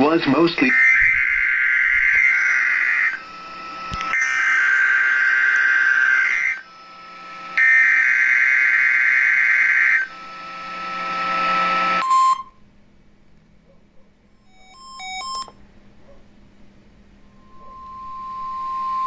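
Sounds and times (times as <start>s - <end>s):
radio hiss: 0.0s - 1.4s, 2.0s - 7.6s
raspy digital data bursts: 0.0s - 12.0s
brief tone: 4.0s - 5.6s, 11.7s - 12.6s, 14.4s - 15.6s, 17.2s - 19.0s
electronic beeps: 4.0s - 6.5s, 14.4s - 15.6s.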